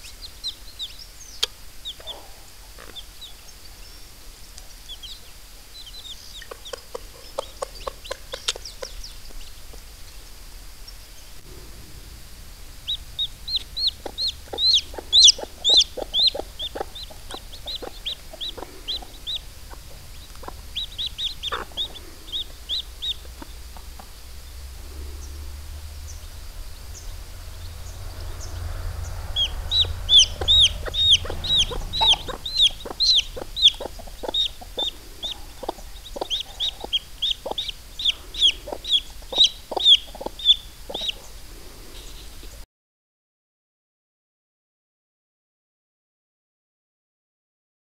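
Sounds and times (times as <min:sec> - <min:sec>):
hen clucking softly: 0:00.0 - 0:03.9, 0:04.6 - 0:10.3, 0:12.8 - 0:25.3, 0:29.3 - 0:42.6
chick peeping: 0:00.0 - 0:11.8, 0:12.4 - 0:42.6.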